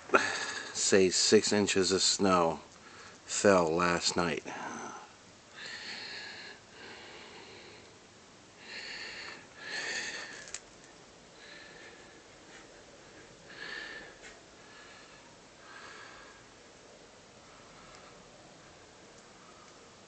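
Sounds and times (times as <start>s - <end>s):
person breathing and sniffing: 8.6s - 10.6s.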